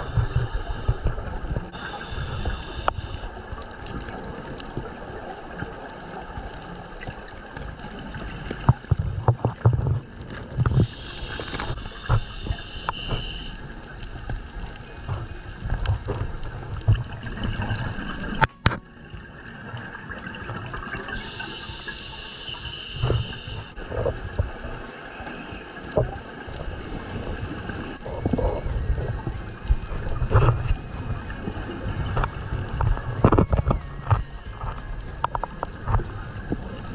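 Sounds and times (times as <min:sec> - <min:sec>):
underwater exhaled bubbles gurgling: 0:00.0 - 0:36.9.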